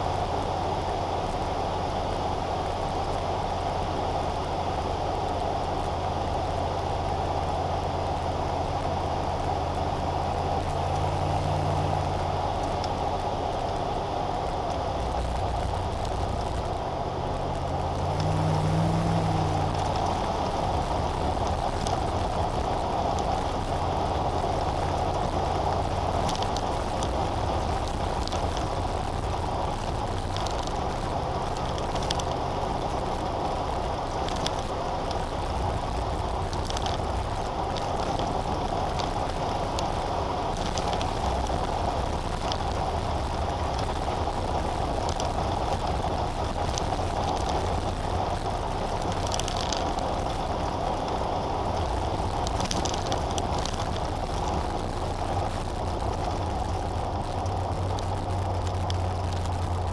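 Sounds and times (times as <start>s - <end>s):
car engine hum: 0.0s - 59.9s
tyre road noise: 0.0s - 59.9s.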